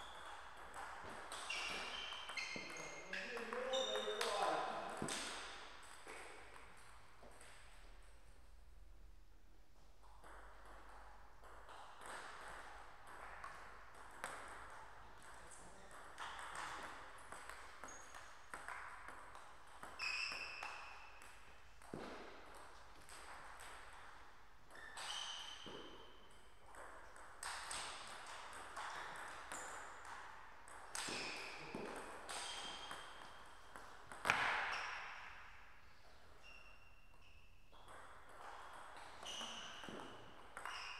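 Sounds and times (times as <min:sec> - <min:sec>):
shoes squeaking on floor: 0:00.0 - 0:05.1, 0:17.8 - 0:18.5, 0:19.9 - 0:21.2, 0:24.7 - 0:26.3, 0:31.0 - 0:33.7, 0:36.1 - 0:37.9, 0:39.0 - 0:40.9.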